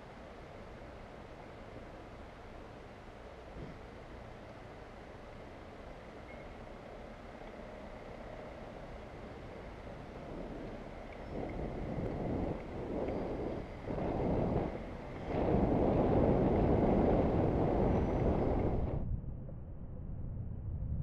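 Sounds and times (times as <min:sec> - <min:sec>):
wind buffeting microphone: 0:08.7 - 0:21.0.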